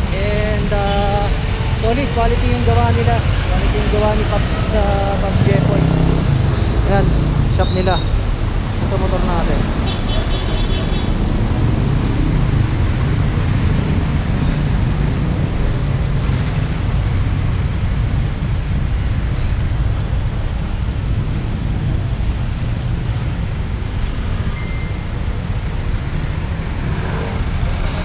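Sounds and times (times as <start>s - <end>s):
engine rumbling: 0.0s - 10.3s.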